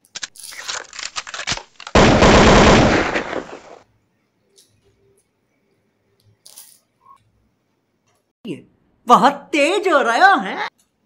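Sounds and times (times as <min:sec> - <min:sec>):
machine gun fire rattling: 0:01.2 - 0:03.8.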